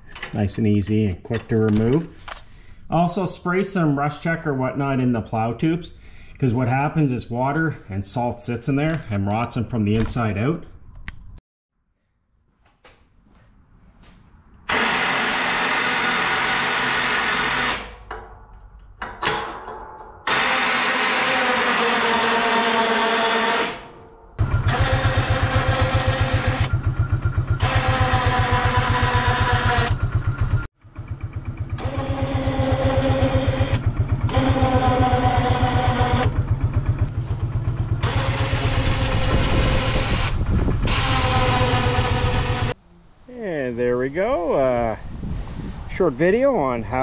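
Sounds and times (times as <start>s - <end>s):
electric winch motor whining: 14.7s - 18.1s, 20.2s - 42.8s
engine idling: 24.4s - 42.8s.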